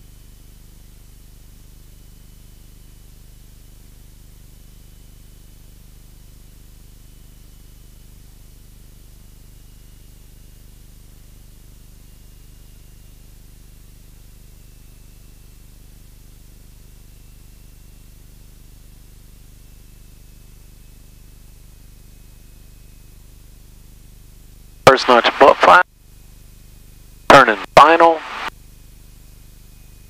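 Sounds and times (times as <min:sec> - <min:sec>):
faint high whine: 0:24.9 - 0:25.8, 0:27.3 - 0:28.5.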